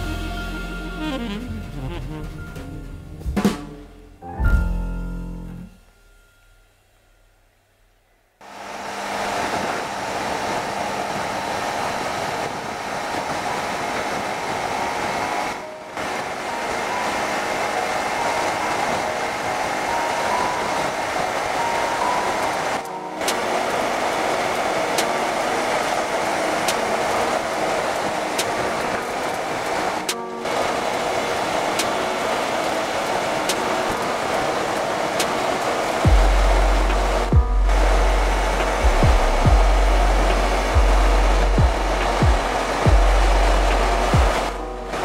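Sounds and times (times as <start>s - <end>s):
wind rush: 8.6s - 45.0s
motorcycle engine running: 36.0s - 44.6s.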